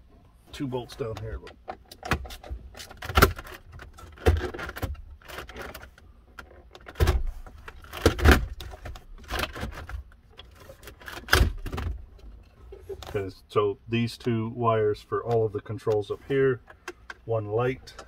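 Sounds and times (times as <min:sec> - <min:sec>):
plastic trim clicking and rattling: 0:01.1 - 0:13.1.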